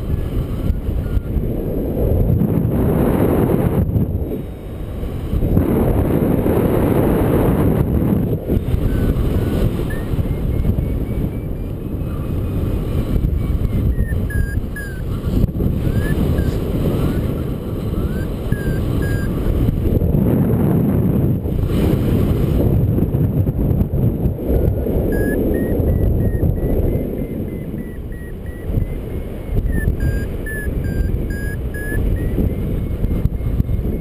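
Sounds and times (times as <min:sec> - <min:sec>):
wind rushing over microphone: 0:00.0 - 0:34.0
variometer beeping: 0:08.5 - 0:19.9, 0:24.6 - 0:34.0.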